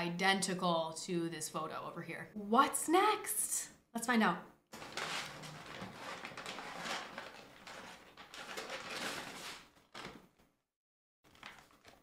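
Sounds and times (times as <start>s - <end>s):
paper bag rustling: 4.8s - 10.2s, 11.3s - 12.0s.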